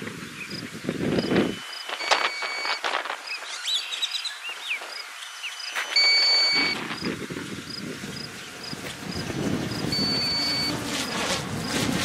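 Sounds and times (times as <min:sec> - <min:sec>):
high electronic beep: 0:01.2 - 0:04.1, 0:05.8 - 0:06.8, 0:09.9 - 0:10.8.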